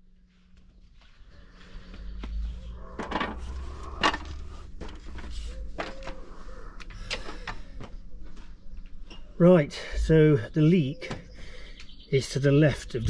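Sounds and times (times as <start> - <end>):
low rumble of handling noise: 0.0 - 10.7
knocks and creaks on ladder rungs: 2.2 - 9.4.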